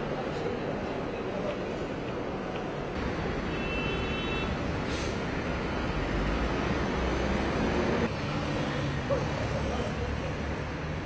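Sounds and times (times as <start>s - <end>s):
road traffic rumbling: 2.2s - 11.0s
short hiss: 4.9s - 5.2s.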